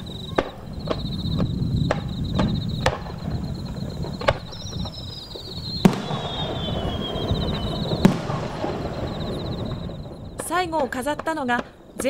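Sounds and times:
firework whistle falling in pitch: 0:00.0 - 0:10.3
firework bangs: 0:00.0 - 0:12.0.

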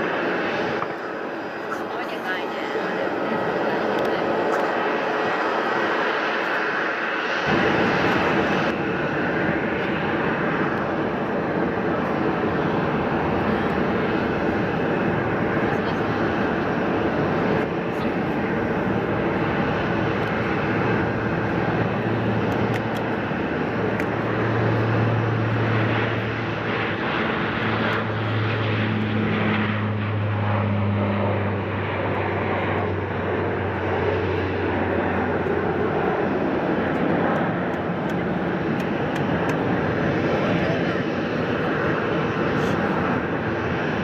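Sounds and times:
jet engines rumbling: 0:00.0 - 0:44.0.

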